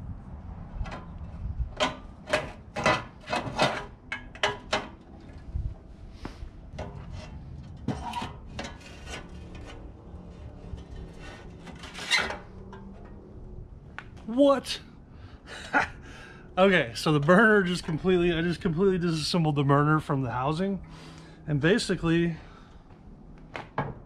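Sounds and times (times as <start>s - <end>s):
metal grill parts clanking: 1.8s - 5.4s, 6.7s - 13.3s.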